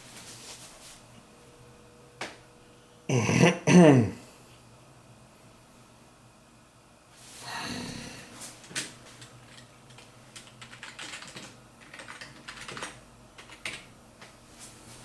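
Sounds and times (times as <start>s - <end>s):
computer keyboard typing: 9.2s - 13.9s.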